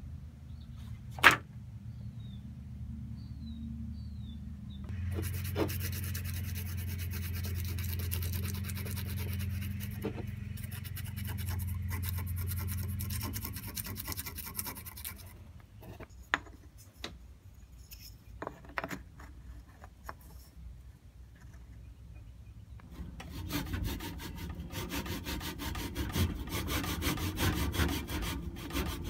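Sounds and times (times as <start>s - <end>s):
sandpaper rasping on wood: 5.0s - 15.3s, 23.2s - 29.0s.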